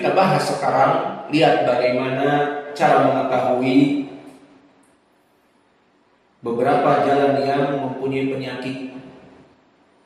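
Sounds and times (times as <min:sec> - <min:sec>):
man speaking: 0:00.0 - 0:04.2, 0:06.4 - 0:09.1.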